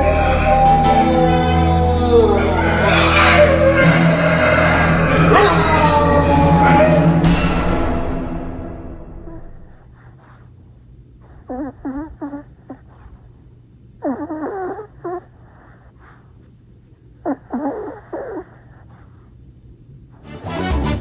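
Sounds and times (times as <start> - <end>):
dog whining: 0.0 - 7.4, 9.1 - 10.5, 11.2 - 16.4, 17.0 - 19.4.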